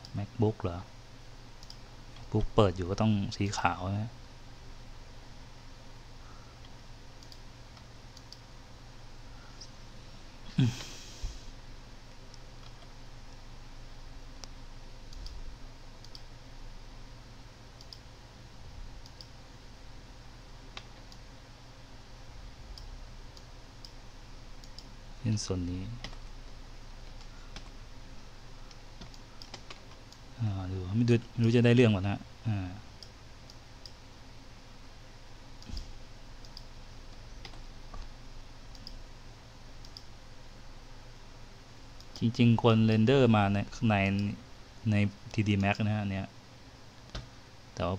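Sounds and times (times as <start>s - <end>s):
low steady hiss: 0.0s - 47.9s
computer mouse clicks: 1.6s - 2.3s, 6.6s - 8.5s, 14.4s - 15.4s, 16.0s - 16.3s, 17.8s - 18.1s, 19.0s - 19.4s, 22.7s - 24.0s, 24.6s - 24.9s, 26.0s - 27.8s, 28.7s - 30.2s, 33.0s - 34.0s, 35.6s - 38.1s, 38.7s - 39.0s, 39.8s - 40.1s, 42.0s - 42.4s.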